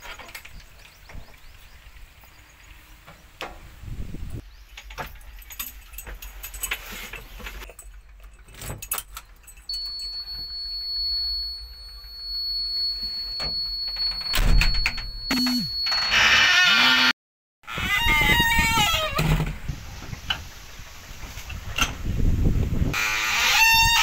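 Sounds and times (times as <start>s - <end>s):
high warning beep: 9.7s - 16.6s.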